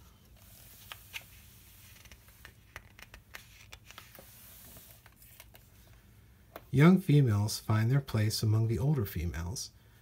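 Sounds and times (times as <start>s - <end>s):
book page turning: 0.0s - 6.0s
low room hum: 0.0s - 10.0s.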